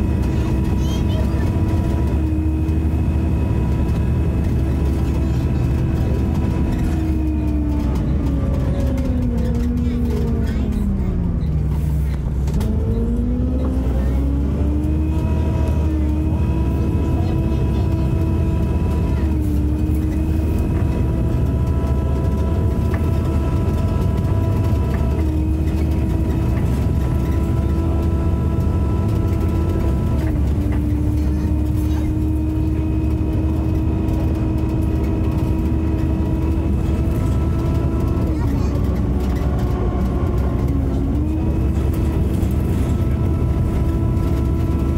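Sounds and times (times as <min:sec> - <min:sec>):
bus engine drone and whine: 0:00.0 - 0:44.9.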